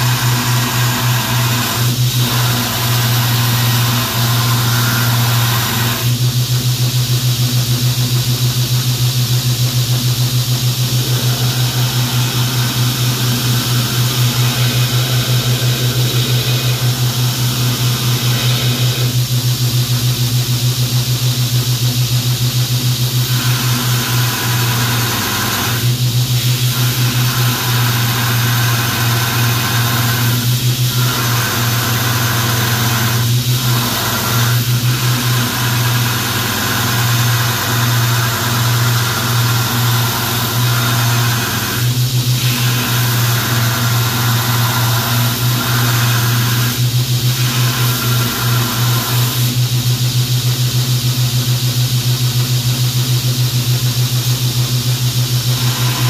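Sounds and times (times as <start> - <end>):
belt grinder motor humming: 0.0 - 6.3, 10.7 - 19.4, 23.1 - 49.7, 55.4 - 56.0
metal grinding hiss: 23.2 - 49.6, 55.4 - 56.0.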